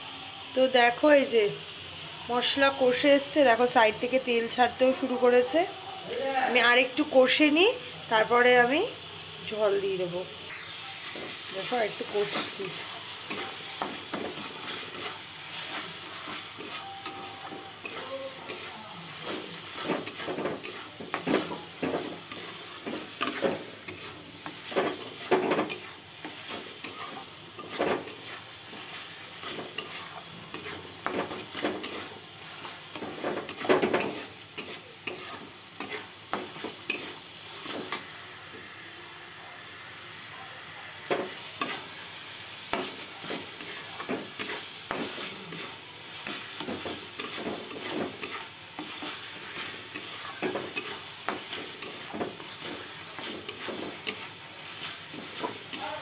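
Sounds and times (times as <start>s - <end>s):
spice paste sizzling in oil: 0.0s - 56.0s
metal spatula scraping pan: 10.5s - 38.1s, 41.1s - 42.0s, 42.7s - 56.0s.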